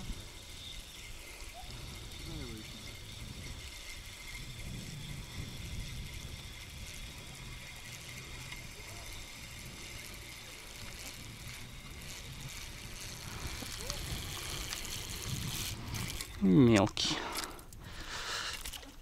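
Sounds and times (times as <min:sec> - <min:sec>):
wind rumbling on microphone: 0:00.0 - 0:16.6.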